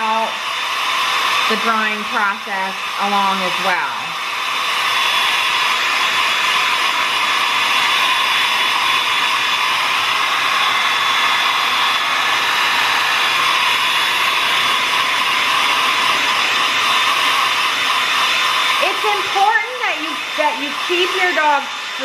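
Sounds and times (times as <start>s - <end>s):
hair dryer running: 0.0s - 22.0s.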